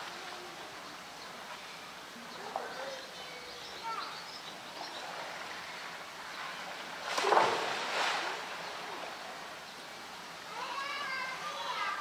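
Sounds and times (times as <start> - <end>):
animal splashing into water: 6.9 - 9.1.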